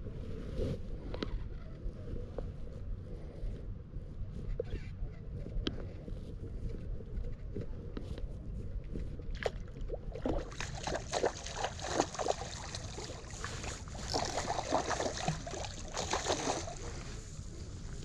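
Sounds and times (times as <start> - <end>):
low steady rumble: 0.0 - 18.0
fish splashing at water surface: 9.4 - 17.1.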